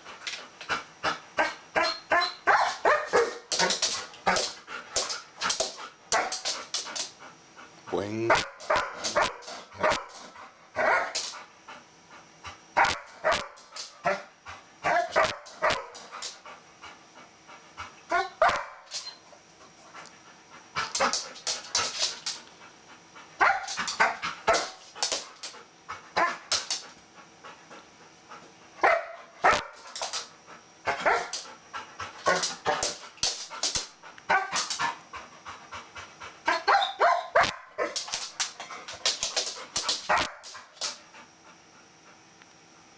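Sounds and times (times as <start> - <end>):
dog barking excitedly: 1.4 - 6.9, 8.3 - 10.2, 10.8 - 11.3, 12.8 - 16.1, 18.1 - 18.9, 23.4 - 25.2, 28.8 - 29.9, 30.8 - 31.4, 32.2 - 34.9, 36.5 - 38.3, 39.1 - 40.9.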